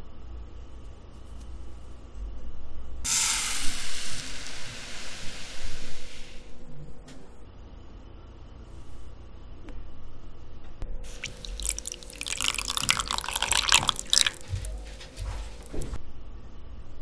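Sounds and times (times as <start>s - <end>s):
water pouring onto sugar: 11.1s - 15.9s.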